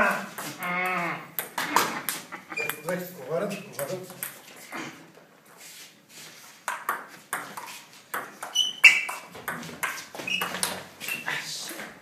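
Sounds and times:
ping-pong ball hits: 0:06.7 - 0:11.2.

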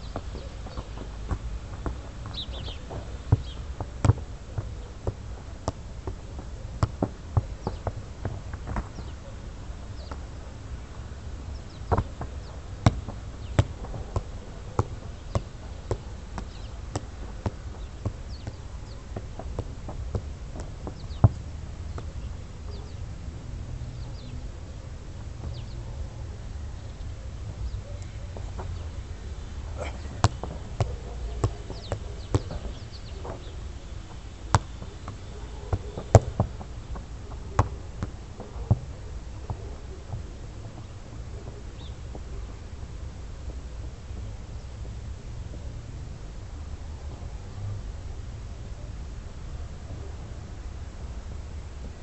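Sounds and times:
football thumping against feet: 0:00.1 - 0:09.1, 0:11.6 - 0:22.1.

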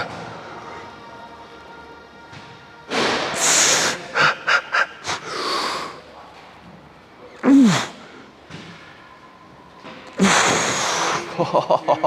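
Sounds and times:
man groaning: 0:07.4 - 0:08.0.

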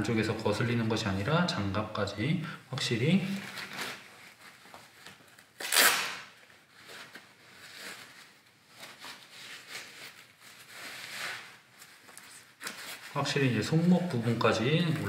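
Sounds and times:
glove fabric rustling: 0:03.2 - 0:15.0.

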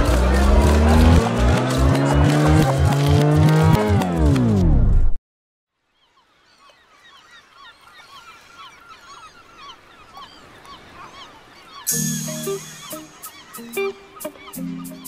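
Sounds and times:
flock of birds calling: 0:06.0 - 0:15.0
music: 0:11.9 - 0:15.0.

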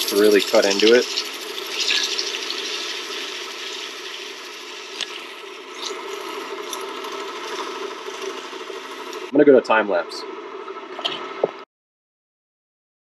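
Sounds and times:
sandpaper scraping metal: 0:00.0 - 0:08.5
drill press motor hum: 0:00.0 - 0:11.6.

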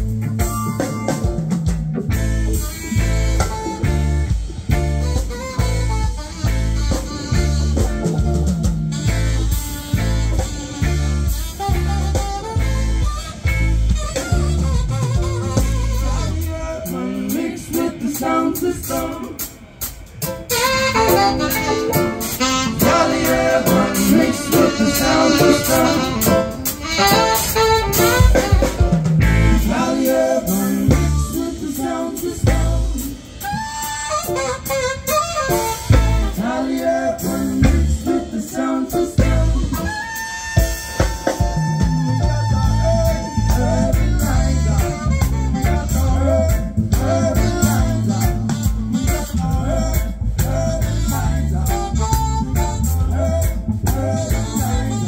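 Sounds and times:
heavy rhythmic bass line: 0:00.0 - 0:55.0
live band playing: 0:00.0 - 0:55.0
person singing: 0:20.5 - 0:28.8, 0:29.4 - 0:34.8, 0:35.5 - 0:55.0.

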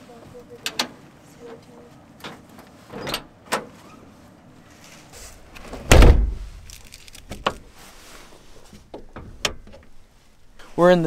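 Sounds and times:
camper shell shutting thump: 0:05.7 - 0:06.4.

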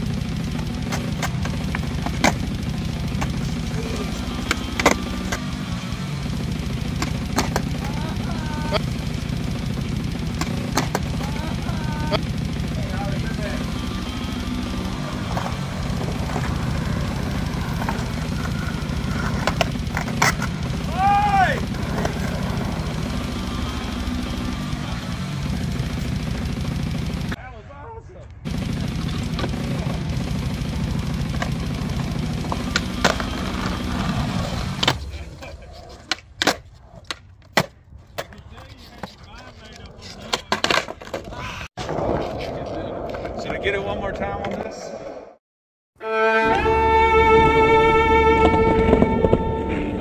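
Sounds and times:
skateboard wheels rolling on concrete: 0:00.0 - 0:27.4, 0:28.4 - 0:45.4, 0:46.4 - 0:50.0
skateboard clacks: 0:00.5 - 0:05.6, 0:06.9 - 0:08.9, 0:10.2 - 0:12.2, 0:13.6 - 0:23.8, 0:29.3 - 0:30.0, 0:31.2 - 0:44.8, 0:48.4 - 0:49.7.

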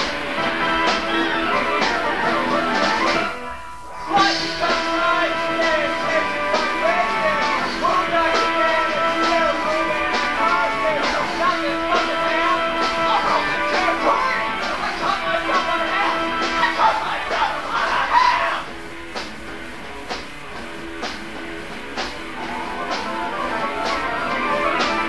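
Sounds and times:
live rock band playing: 0:00.0 - 0:25.0
person singing: 0:04.0 - 0:18.7.

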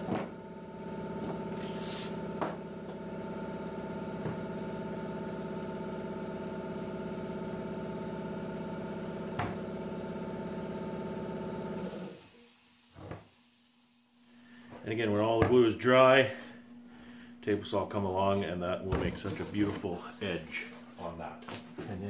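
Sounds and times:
air compressor running: 0:00.0 - 0:14.8.

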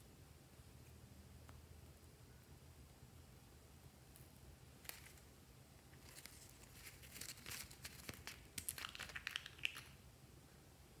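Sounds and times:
paper tearing and crinkling: 0:06.0 - 0:09.2.

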